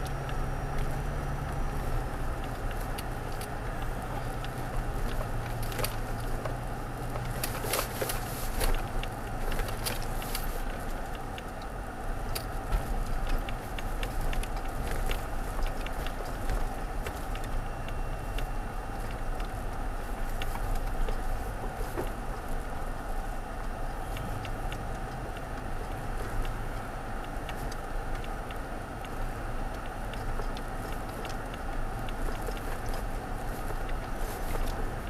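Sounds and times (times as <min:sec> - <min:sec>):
low engine hum: 0:00.0 - 0:35.0.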